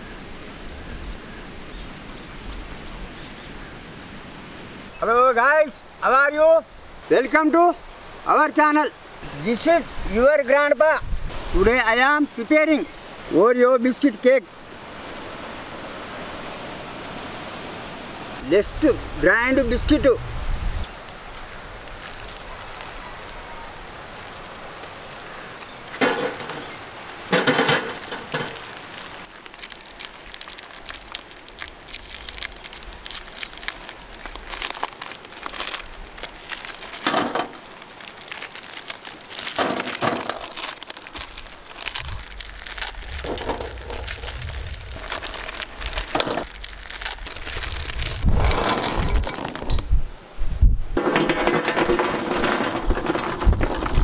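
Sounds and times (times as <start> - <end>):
plastic wrappers tearing and crinkling: 21.0 - 49.8
biscuits clattering into steel bowl: 51.0 - 54.0.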